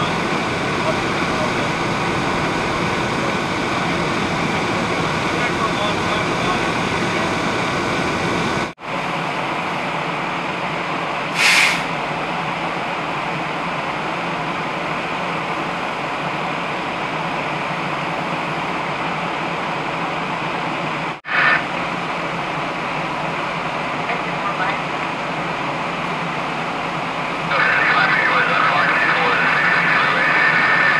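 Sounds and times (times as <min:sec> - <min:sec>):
fire engine pump humming: 0:00.0 - 0:30.9
fire hose spray: 0:11.3 - 0:12.0.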